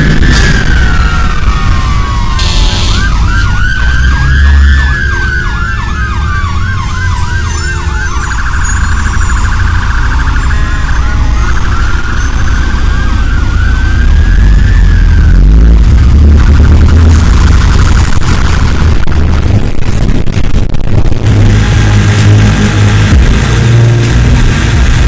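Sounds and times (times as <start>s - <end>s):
fire engine siren wailing: 0.0s - 19.2s
deep rumble: 0.0s - 25.0s.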